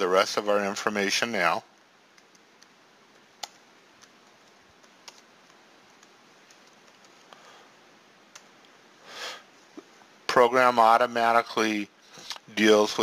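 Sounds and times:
low steady hiss: 0.0 - 13.0
soft rush of noise: 0.0 - 13.0
faint keyboard keystrokes: 2.1 - 7.4.

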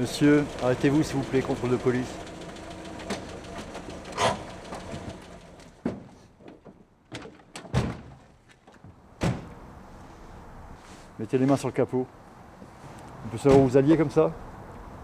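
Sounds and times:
car door clunks and thuds: 8.8 - 9.6.

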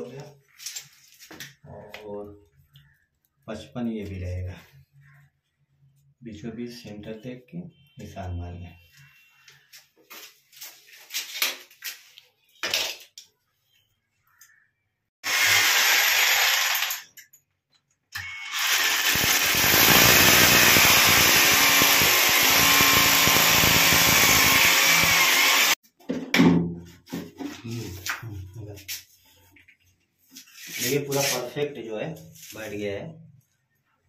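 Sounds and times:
hammer drill boring into tile: 15.2 - 17.1, 18.2 - 25.8.

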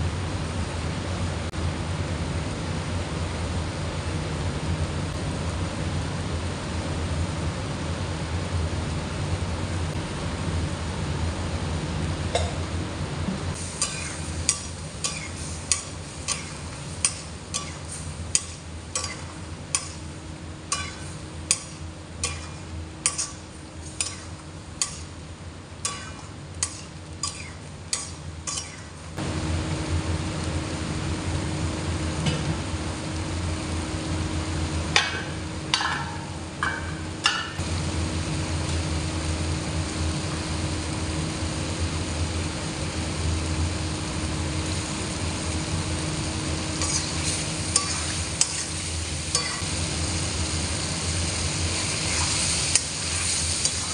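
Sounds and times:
curry sizzling: 13.5 - 35.7, 37.6 - 53.9.

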